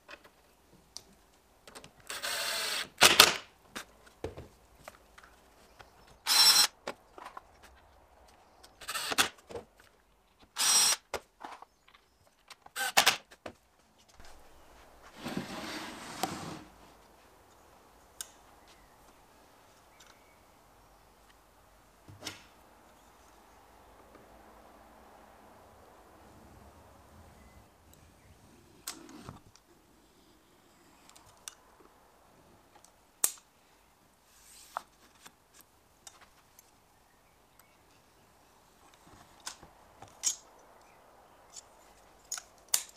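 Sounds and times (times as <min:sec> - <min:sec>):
power drill running: 0:02.1 - 0:02.9.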